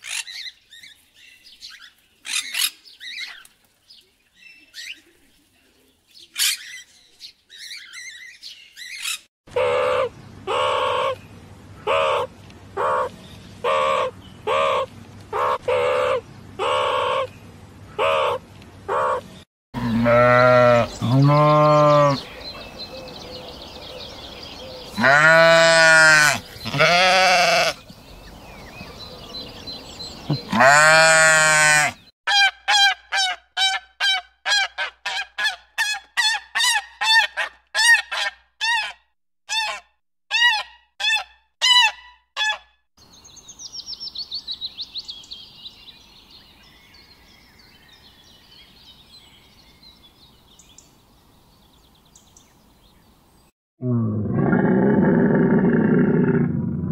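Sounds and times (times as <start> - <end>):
meerkats calling: 18.0 - 22.2
animal honking calls: 19.8 - 22.2, 24.9 - 27.8
sheep bleating: 19.8 - 22.2, 25.0 - 27.8, 30.3 - 32.0.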